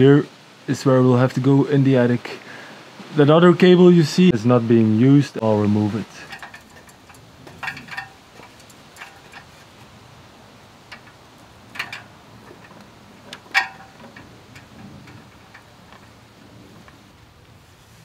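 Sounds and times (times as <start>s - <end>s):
cable clicking and knocking: 6.2s - 10.1s, 10.8s - 17.1s.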